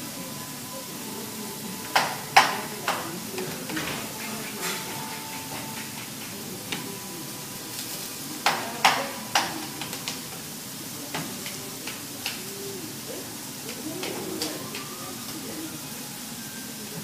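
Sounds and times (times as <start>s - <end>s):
food sizzling on a griddle: 0.0s - 17.0s
metal spatulas clanking and scraping: 3.7s - 6.2s.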